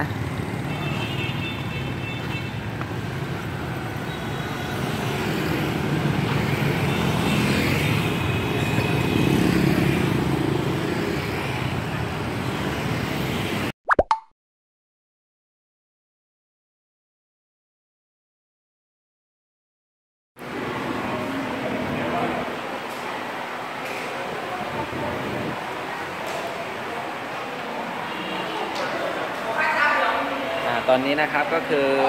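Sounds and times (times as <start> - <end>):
passing motorbikes and cars: 0.0 - 13.7, 20.4 - 32.0.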